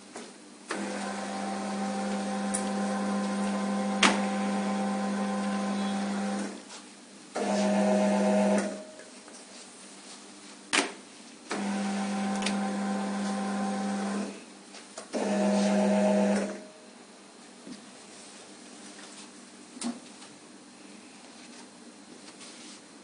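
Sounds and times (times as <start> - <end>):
conveyor belt motor humming: 0.7 - 6.6, 11.6 - 14.3, 15.1 - 16.9.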